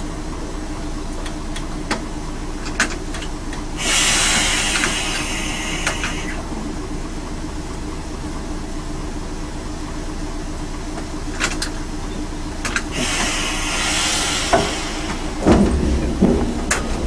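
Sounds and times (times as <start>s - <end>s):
railcar engine hum: 0.0s - 17.0s
wheels clicking over rail joints: 1.1s - 9.1s, 10.9s - 17.0s
hissing: 3.8s - 6.4s, 12.9s - 16.2s
heavy clatter: 12.6s - 17.0s.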